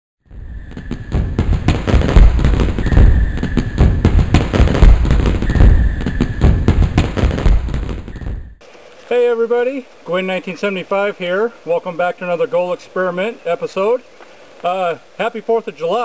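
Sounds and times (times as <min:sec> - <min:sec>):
deep low thumps: 0:00.3 - 0:08.6
fireworks crackling and popping: 0:00.3 - 0:16.0.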